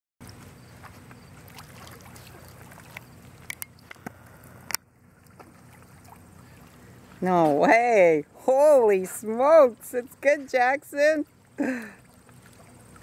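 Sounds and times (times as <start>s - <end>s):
dog splashing through water: 0.2s - 3.4s.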